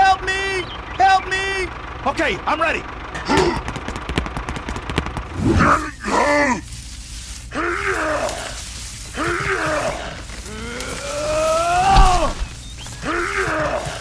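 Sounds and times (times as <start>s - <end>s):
low steady hum: 0.0s - 14.0s
man groaning and grunting: 9.2s - 12.4s.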